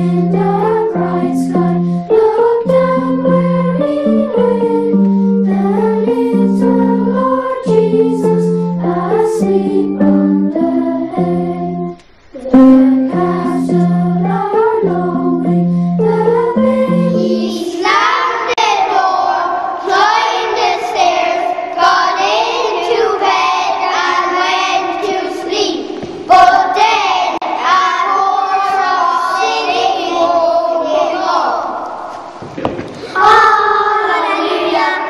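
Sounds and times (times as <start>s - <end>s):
instrumental accompaniment: 0.0s - 18.2s
children singing: 0.0s - 32.1s, 33.0s - 35.0s.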